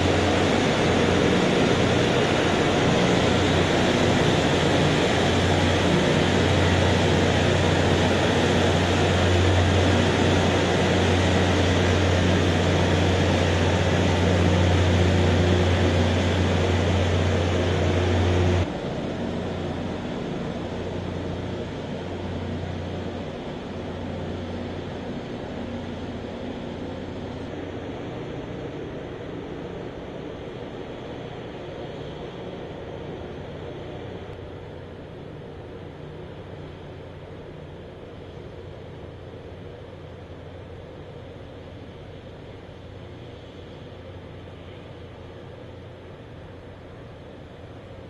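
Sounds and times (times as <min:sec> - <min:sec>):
rail grinding noise: 0:00.0 - 0:37.2
low hum: 0:00.0 - 0:48.0
train rumbling: 0:00.0 - 0:48.0.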